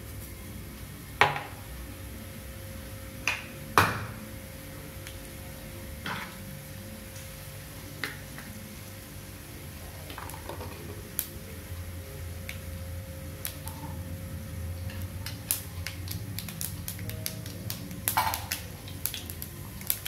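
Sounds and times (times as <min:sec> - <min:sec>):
steady low hum: 0:00.0 - 0:20.0
seeds popping in hot oil: 0:10.0 - 0:11.4, 0:12.4 - 0:20.0.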